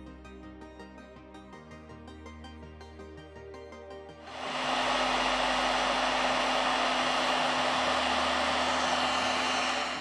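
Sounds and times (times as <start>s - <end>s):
hot air gun blowing: 4.2s - 10.0s
low blower hum: 4.2s - 10.0s.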